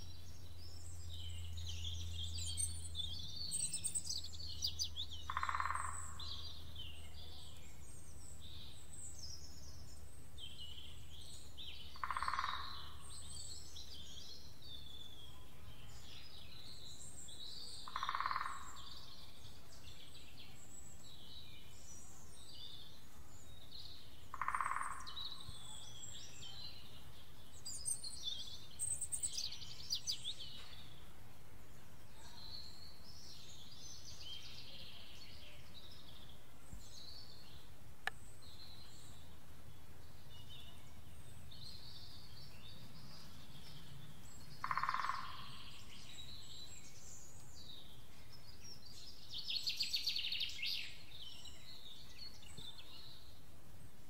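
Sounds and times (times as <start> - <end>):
small birds chirping: 0.0 - 54.0
background hiss: 24.9 - 44.7.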